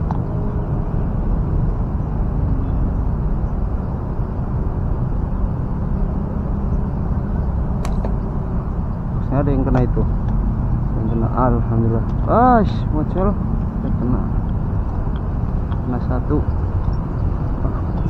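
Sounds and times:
low outdoor rumble: 0:00.0 - 0:18.0
sharp snap: 0:07.8 - 0:08.2.

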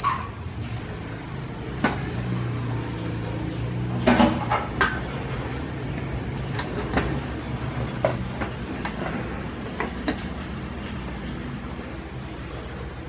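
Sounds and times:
camping cookware knocking and clattering: 0:04.0 - 0:05.3, 0:05.9 - 0:10.7.

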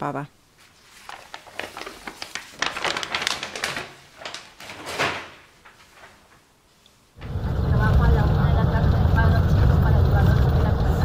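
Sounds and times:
plastic sheet crinkling: 0:00.6 - 0:06.8.

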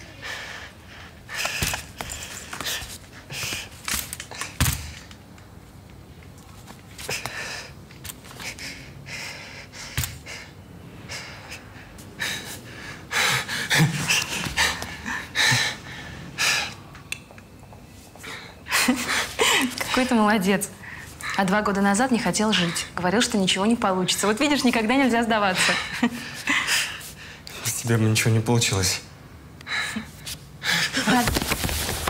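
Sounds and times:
man breathing heavily and panting: 0:00.0 - 0:05.2, 0:07.0 - 0:16.9, 0:25.5 - 0:27.6.

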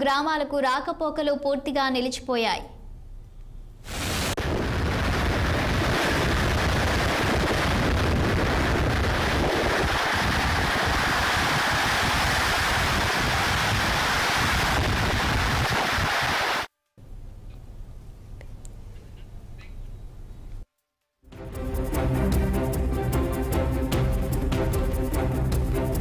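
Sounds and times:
wind buffeting microphone: 0:04.4 - 0:16.3
floodwater rushing through spillway: 0:09.6 - 0:16.7.

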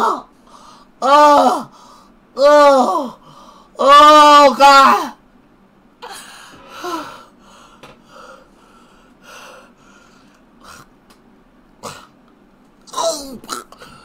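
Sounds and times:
man's strained cry: 0:00.0 - 0:00.3, 0:01.0 - 0:01.7, 0:02.4 - 0:03.2, 0:12.9 - 0:14.0.

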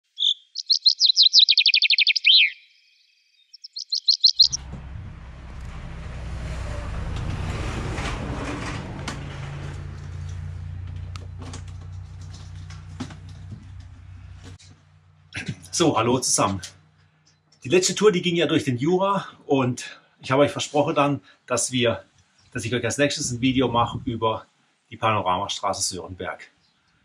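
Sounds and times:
songbird trilling: 0:00.0 - 0:04.6
clicks and rustles of bags: 0:09.1 - 0:14.7.

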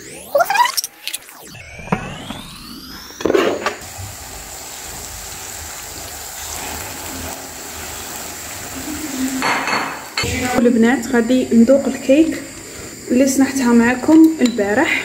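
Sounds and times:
vegetables sizzling in a pan: 0:03.8 - 0:15.0.

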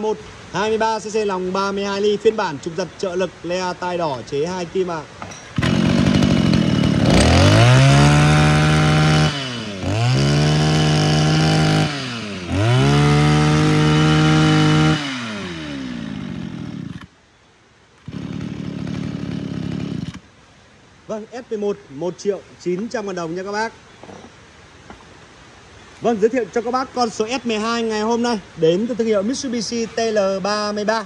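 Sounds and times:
brush cutter engine revving: 0:05.4 - 0:17.1, 0:18.0 - 0:20.2.

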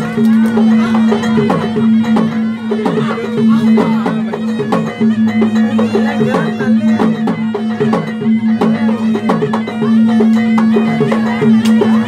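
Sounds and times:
hand drums: 0:00.0 - 0:12.0
reedy shawm melody: 0:00.0 - 0:12.0.

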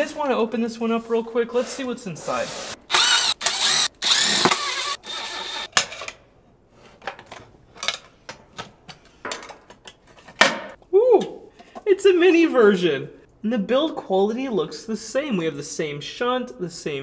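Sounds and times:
drill motor running: 0:02.4 - 0:05.7.

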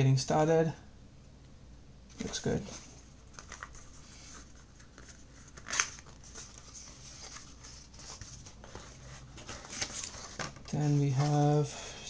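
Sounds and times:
cardboard rustling and sliding: 0:02.2 - 0:11.7.

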